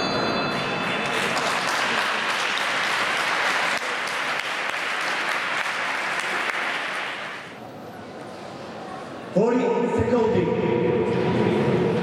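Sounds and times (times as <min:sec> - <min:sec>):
crowd applauding: 0:00.6 - 0:07.6.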